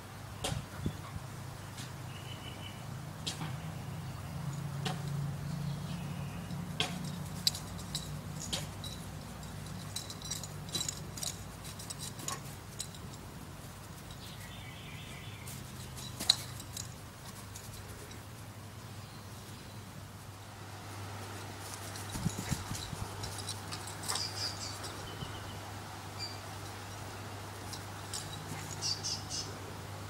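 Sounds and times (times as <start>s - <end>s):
dog trotting on dry grass: 21.3s - 25.1s.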